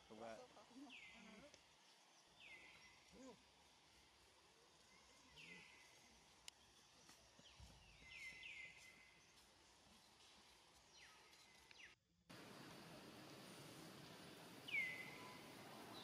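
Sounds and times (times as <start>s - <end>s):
faint outdoor ambience: 0.0s - 16.0s
small bird chirping: 0.9s - 3.3s, 4.8s - 12.0s, 14.6s - 16.0s
hiss: 12.3s - 16.0s.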